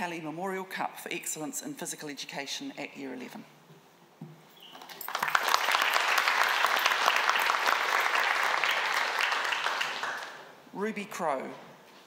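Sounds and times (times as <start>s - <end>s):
audience clapping: 4.9s - 10.5s.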